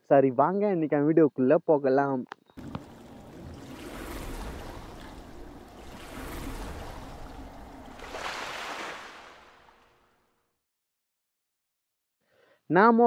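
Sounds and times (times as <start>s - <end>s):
rushing surf-like noise: 2.6s - 9.8s.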